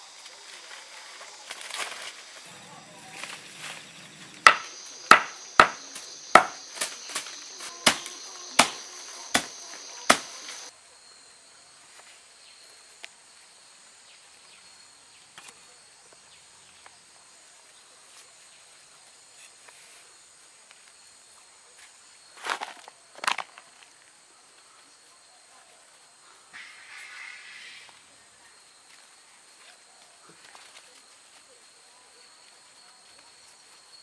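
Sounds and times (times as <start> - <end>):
higher insect trill: 0.0 - 11.4
high insect chirring: 0.8 - 10.7
sharp snaps: 4.4 - 10.7.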